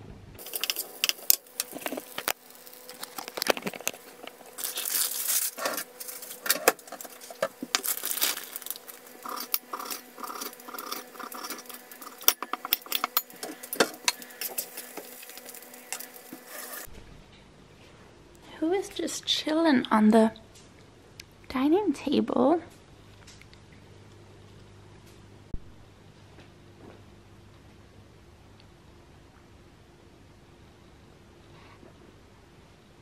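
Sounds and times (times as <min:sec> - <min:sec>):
faint steady hum: 0:00.0 - 0:33.0
pan and utensils clinking: 0:00.4 - 0:02.3.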